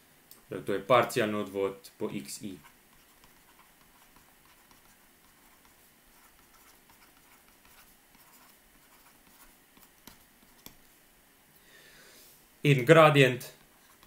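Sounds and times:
stylus scratching on tablet: 2.4s - 10.9s, 13.6s - 14.0s.

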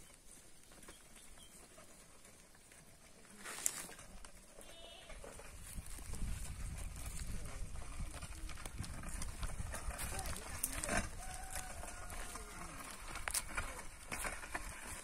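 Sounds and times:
faint animal call: 4.6s - 5.3s.

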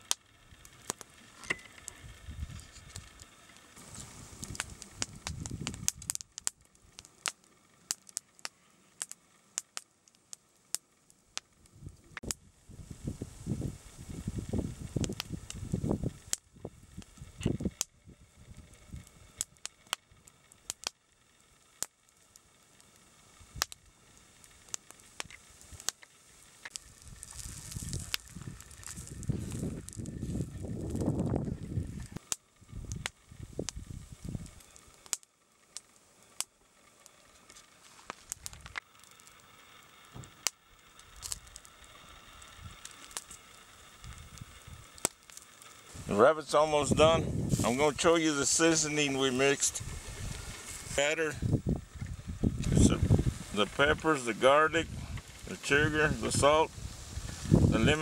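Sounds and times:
campfire crackling and popping: 0.0s - 58.0s
low rumble: 26.8s - 34.6s, 45.9s - 48.1s, 49.6s - 54.0s.

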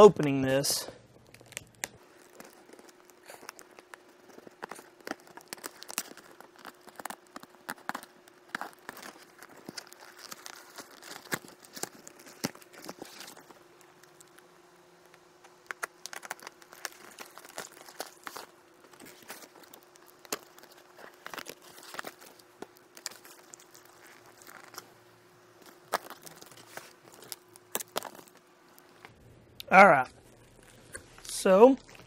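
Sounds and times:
packing tape peeling: 1.2s - 29.1s
cardboard flaps tearing: 1.3s - 13.6s, 15.6s - 24.9s, 25.6s - 28.4s.

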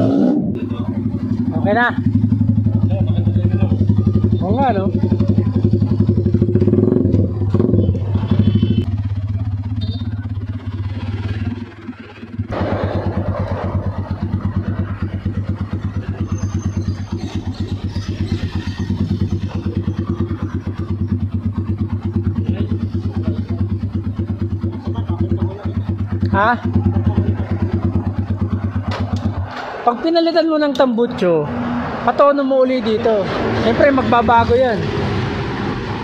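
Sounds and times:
motorcycle engine idling: 0.6s - 29.5s.

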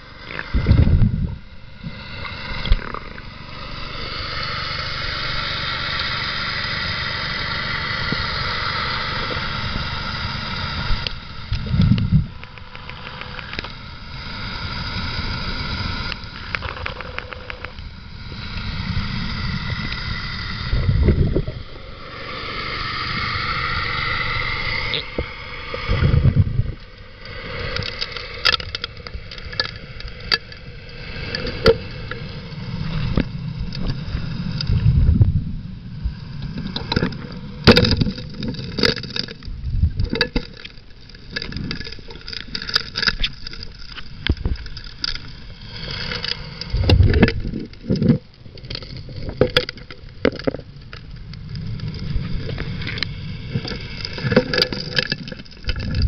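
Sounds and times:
engine and pump drone: 0.0s - 35.4s
rocks and gravel clacking underwater: 10.9s - 13.8s, 16.1s - 17.8s, 27.7s - 32.2s, 36.4s - 56.0s.

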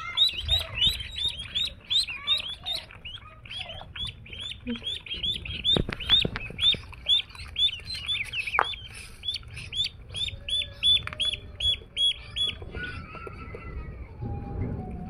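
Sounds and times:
ducklings peeping: 0.0s - 13.8s.

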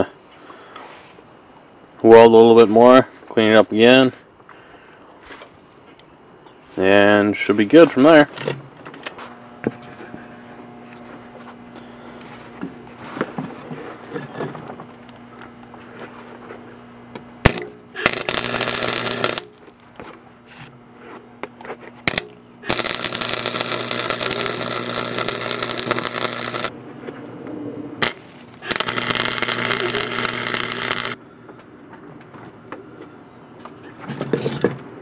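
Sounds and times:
welder hum: 9.1s - 26.8s, 28.0s - 31.2s
welding arc crackling: 17.4s - 19.8s, 22.0s - 26.7s, 28.0s - 31.2s.

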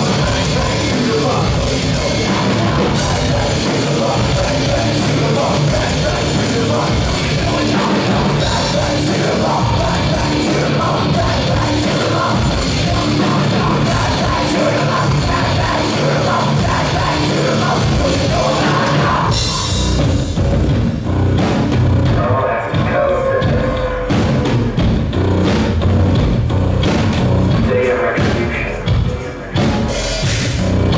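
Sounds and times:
person singing: 0.0s - 20.0s
drum kit: 0.0s - 30.9s.

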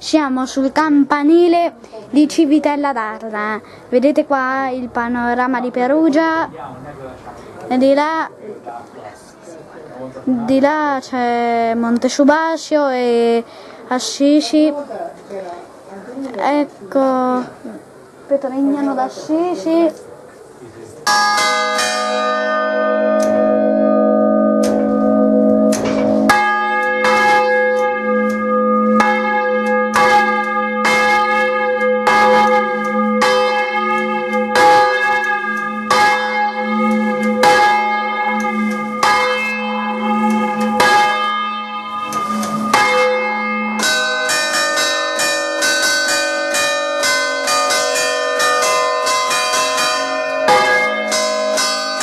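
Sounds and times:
church bells ringing: 21.0s - 52.0s
deep lingering bell hum: 21.4s - 45.5s.

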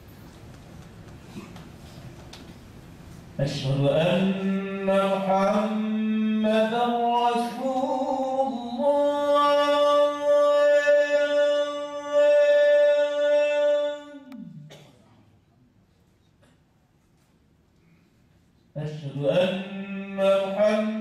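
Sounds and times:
man chanting: 3.4s - 14.6s, 18.7s - 21.0s.

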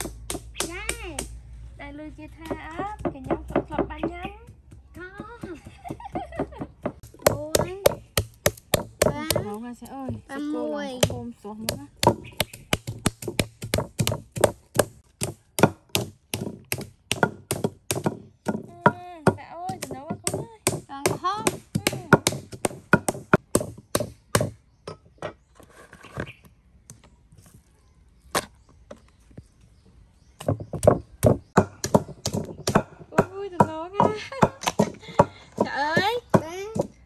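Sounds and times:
meat pounded on wooden board: 6.4s - 9.6s, 11.0s - 24.6s, 30.4s - 36.9s.

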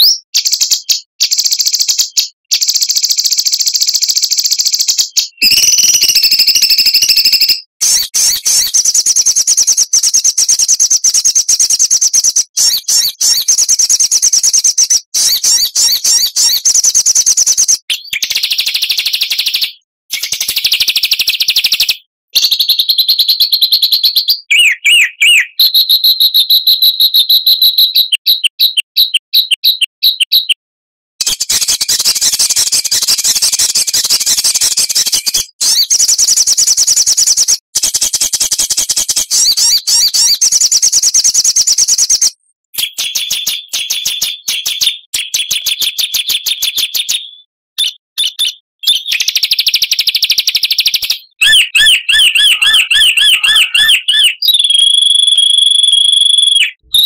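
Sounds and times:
songbird chattering and trilling: 0.0s - 30.6s, 39.1s - 45.6s, 51.2s - 57.0s.

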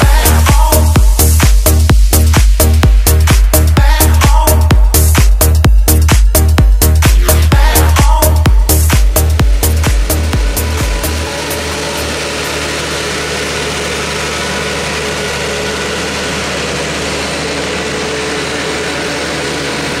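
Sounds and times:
tractor diesel engine running: 0.0s - 20.0s
manure spreader beaters throwing manure: 9.9s - 20.0s.

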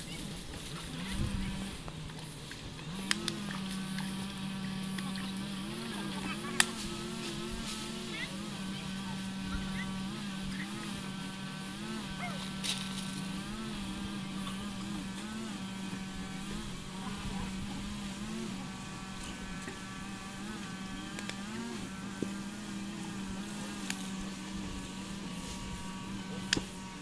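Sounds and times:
engine-like hum: 0.0s - 27.0s
sharp clicks: 3.0s - 4.1s.

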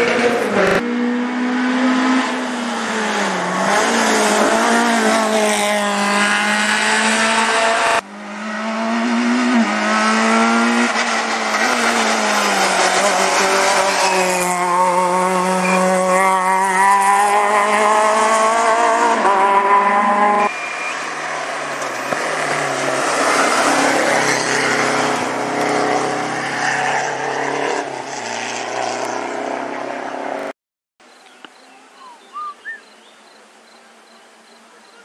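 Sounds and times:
rally car engine revving: 0.0s - 30.5s
rally car passing: 0.0s - 30.5s
birds chirping: 31.0s - 35.0s.

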